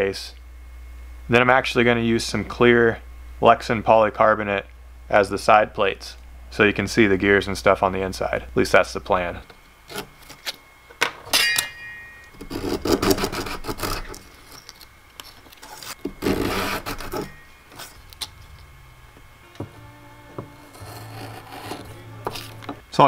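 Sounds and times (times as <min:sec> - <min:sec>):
hand saw strokes: 0:12.5 - 0:14.2, 0:15.8 - 0:18.0, 0:20.5 - 0:22.6
wood and tool knocking on bench: 0:19.6 - 0:20.6.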